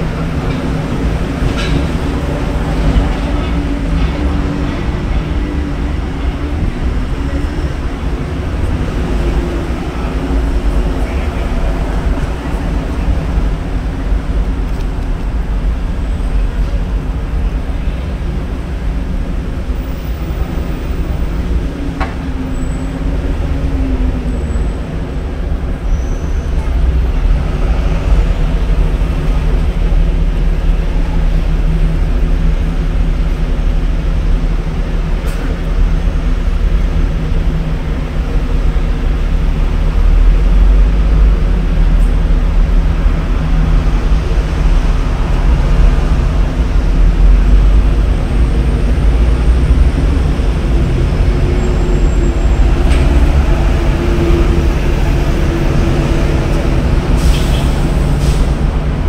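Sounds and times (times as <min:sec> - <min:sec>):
loud low engine drone: 0:26.5 - 0:59.0.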